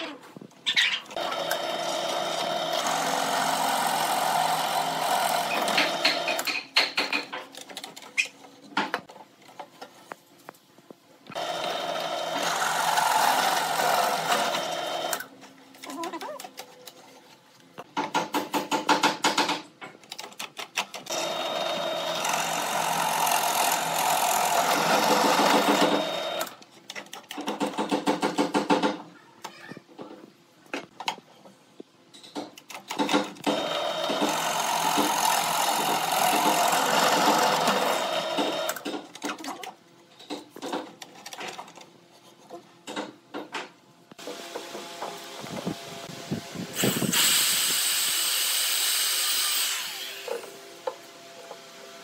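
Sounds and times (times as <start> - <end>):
drill press boring into wood: 1.2 - 6.5, 21.1 - 26.6, 33.4 - 38.8, 46.8 - 50.6.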